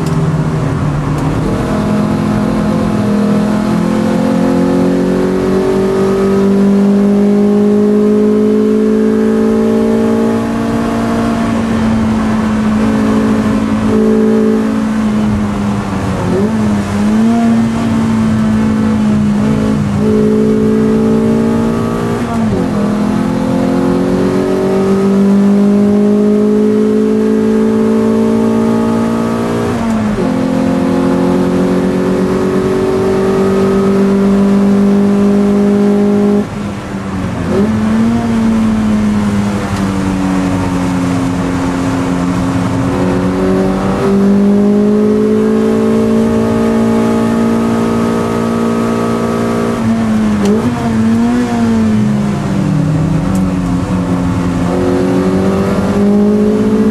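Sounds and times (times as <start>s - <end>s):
race car engine under load: 0.0s - 56.9s.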